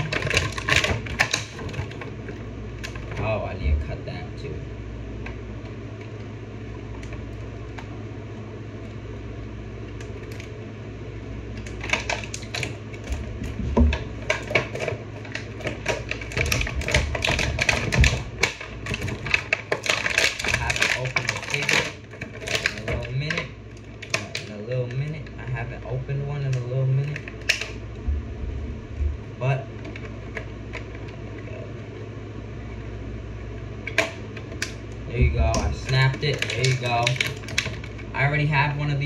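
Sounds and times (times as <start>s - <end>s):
plastic packaging crinkling: 0.0s - 3.2s, 11.5s - 24.7s, 33.9s - 38.2s
steady low hum: 0.0s - 39.0s.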